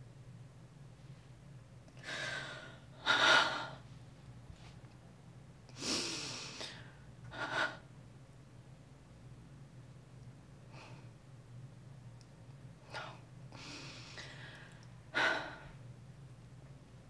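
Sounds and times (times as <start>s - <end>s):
steady low hum: 0.0s - 17.0s
person breathing heavily: 2.0s - 3.8s, 13.5s - 15.8s.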